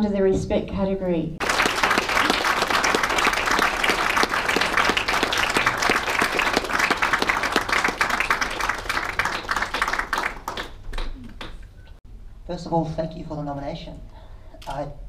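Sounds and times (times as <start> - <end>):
audience applauding: 1.4 - 12.0.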